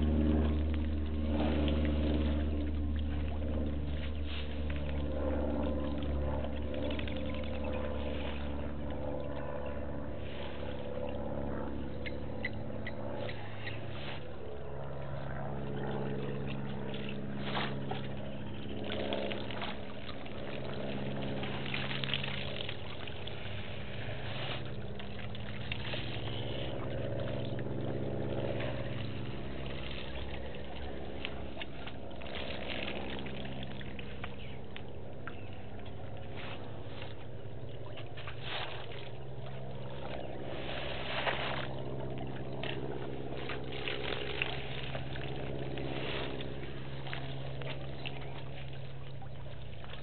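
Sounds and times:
water splashing and pouring: 0.0s - 9.0s, 16.8s - 27.7s, 28.4s - 35.0s, 37.8s - 50.0s
elephants low rumbles: 0.0s - 33.2s.

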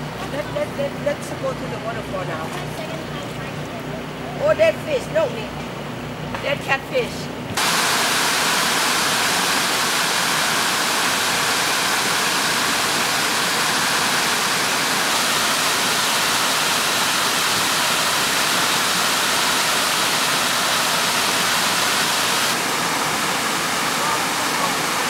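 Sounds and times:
waterfall rushing: 7.6s - 25.0s.

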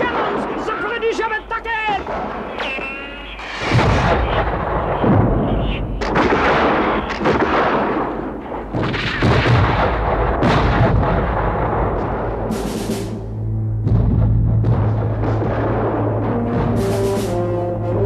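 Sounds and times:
musket shots: 2.0s - 13.2s
cannon blasts: 2.0s - 13.3s, 13.9s - 17.3s.

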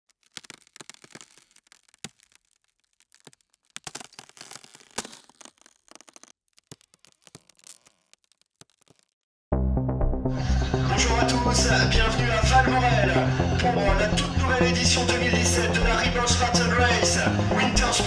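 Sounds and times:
ice cracking and snapping: 0.0s - 9.2s.

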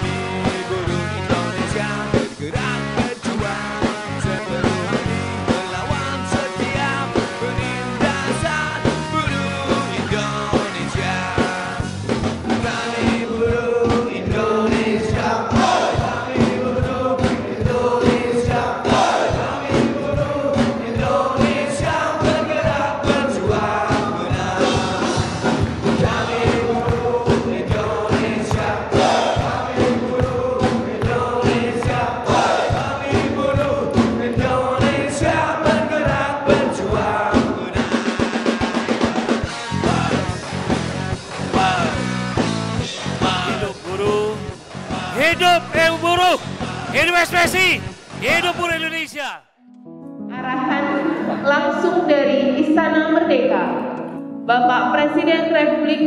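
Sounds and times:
rock music with driving beat: 0.0s - 21.6s, 37.8s - 49.2s
person singing: 43.3s - 49.4s.

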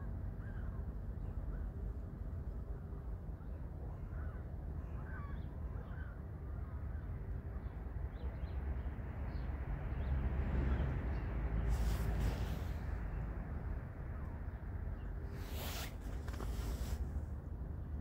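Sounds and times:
steady low rumble: 10.0s - 18.0s.

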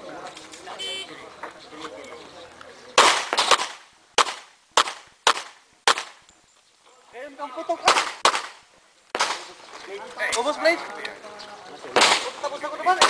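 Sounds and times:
pistol shots: 3.0s - 6.2s, 7.8s - 9.6s.

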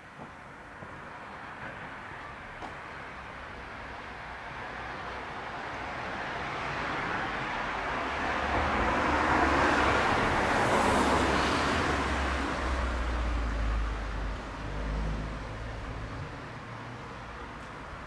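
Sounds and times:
car passing: 4.8s - 18.0s.

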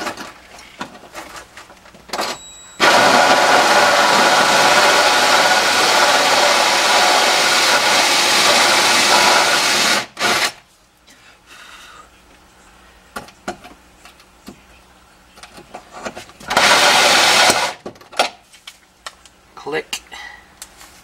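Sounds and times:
cordless drill cutting metal: 2.8s - 10.6s, 16.5s - 17.8s.

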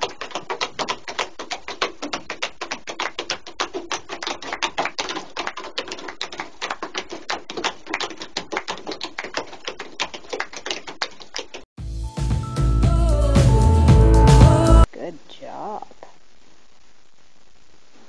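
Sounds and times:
shoes tapping on wooden boards: 0.0s - 11.7s.

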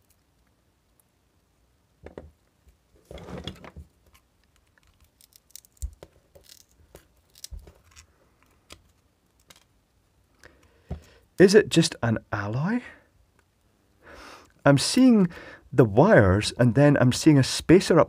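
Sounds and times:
small clicks and snaps: 4.1s - 9.7s
pliers crunching fuse casing: 4.6s - 8.1s.

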